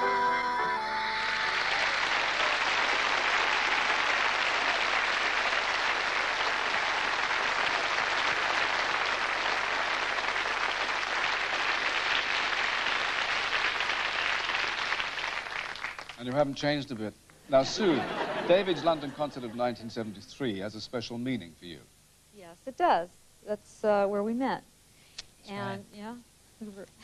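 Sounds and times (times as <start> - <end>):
audience applauding: 0.6 - 20.0.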